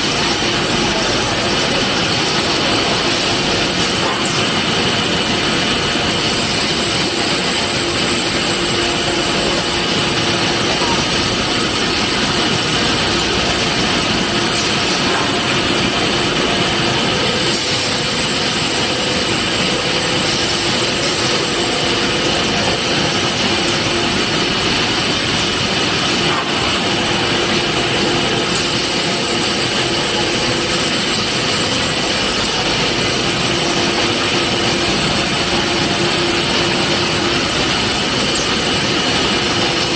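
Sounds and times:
grinding machine whirring: 0.0 - 39.9.

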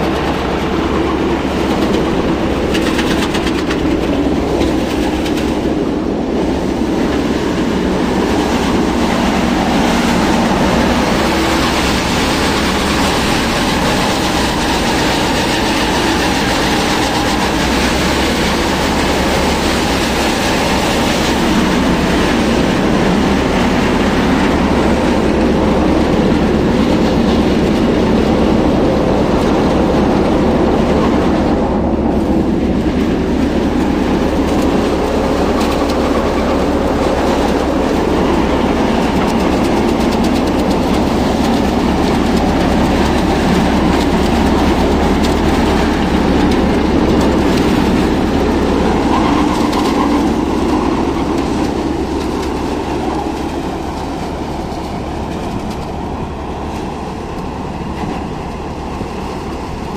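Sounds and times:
thresher rattle and whir: 0.0 - 59.9.

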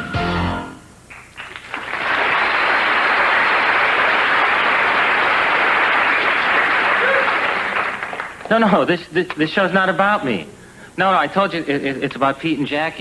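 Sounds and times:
studio audience applause: 1.1 - 8.5
scattered claps: 1.1 - 8.6.

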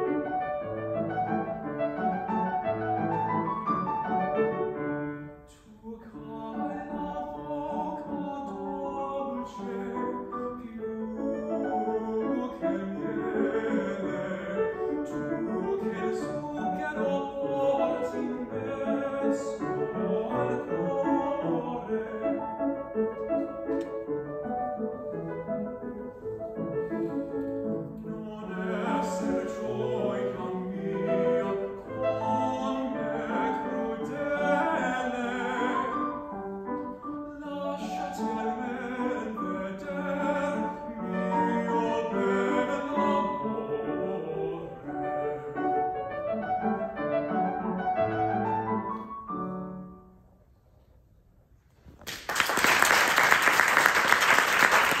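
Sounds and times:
piano accompaniment: 0.0 - 50.5
man singing opera: 5.4 - 23.9, 26.9 - 49.6
audience applause: 52.0 - 55.0.

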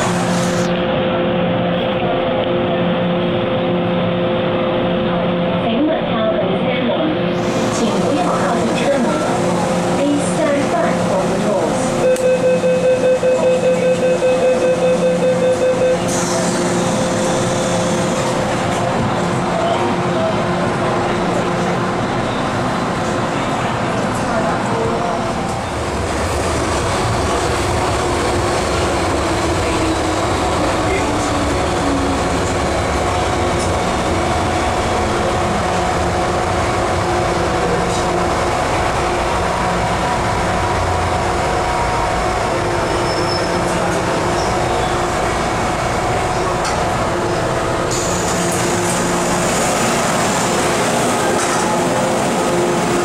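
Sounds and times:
train doors opening: 15.5 - 19.7, 46.4 - 47.1, 47.8 - 53.0
wheels rumbling on track: 16.0 - 53.0.

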